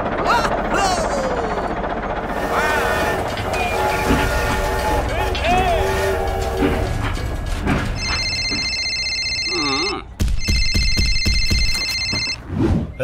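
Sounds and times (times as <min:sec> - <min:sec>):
electronic telephone ringtone: 0:08.0 - 0:12.4.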